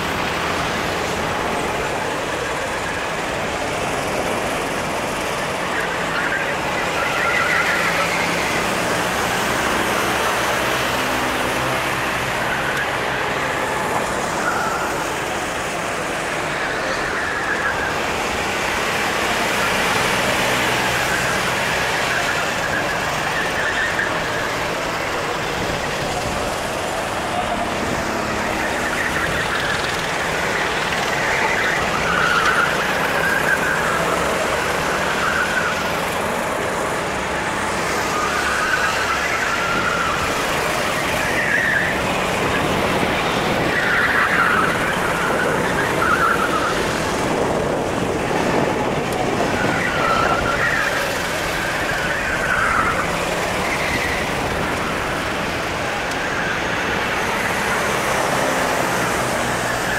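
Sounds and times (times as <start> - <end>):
kart engine: 0.0 - 59.9
tyre squeals: 4.1 - 59.9
wind rush: 46.8 - 52.4.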